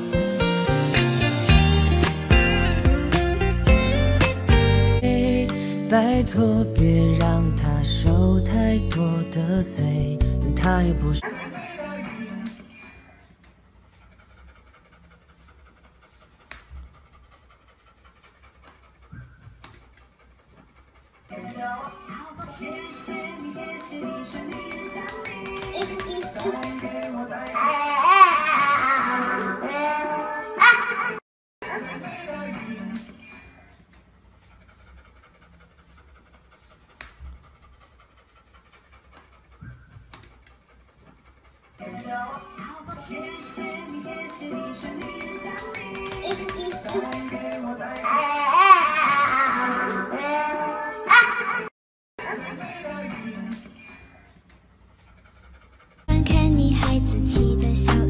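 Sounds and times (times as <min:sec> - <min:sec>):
dog panting: 0:10.6 - 0:31.2, 0:32.0 - 0:51.7, 0:52.8 - 0:58.0.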